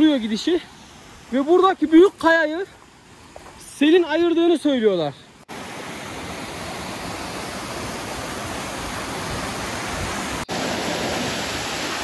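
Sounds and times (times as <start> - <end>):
waterfall splashing over rocks: 5.5 - 12.0.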